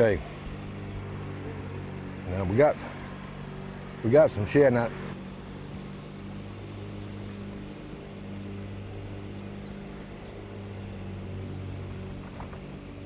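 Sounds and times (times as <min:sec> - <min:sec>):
outboard motor idling: 0:00.0 - 0:13.0.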